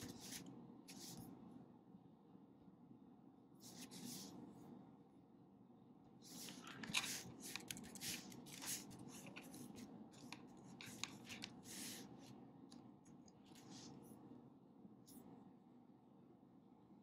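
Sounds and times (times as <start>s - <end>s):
typing on laptop keyboard: 6.7s - 9.5s.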